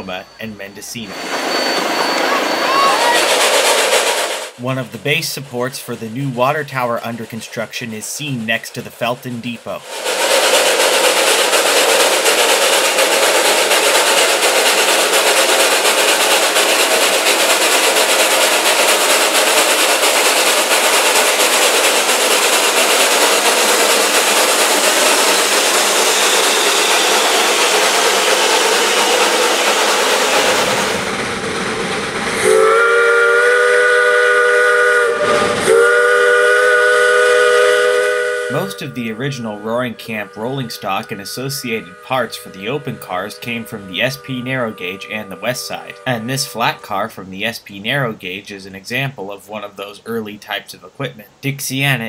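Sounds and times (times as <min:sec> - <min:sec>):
locomotive chime whistle: 0:00.0 - 0:03.7, 0:32.4 - 0:48.4
steam hissing: 0:00.0 - 0:50.1.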